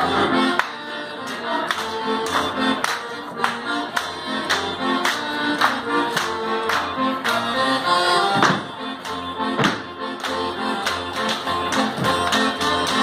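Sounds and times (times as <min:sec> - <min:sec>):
folk dance music: 0:00.0 - 0:13.0
dancers' percussive slaps: 0:08.3 - 0:13.0.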